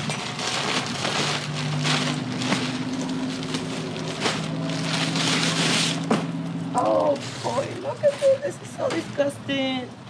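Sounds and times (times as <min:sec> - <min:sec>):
plastic bag rustling: 0:00.0 - 0:08.5.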